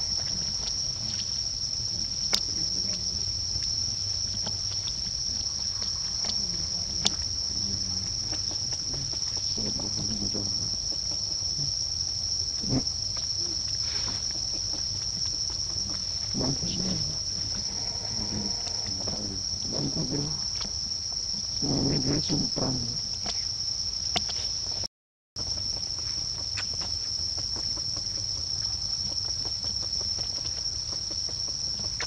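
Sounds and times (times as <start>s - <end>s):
high-pitched insect chorus: 0.0s - 32.0s
low voice-like sounds: 6.2s - 10.8s, 12.6s - 14.3s, 15.8s - 20.4s.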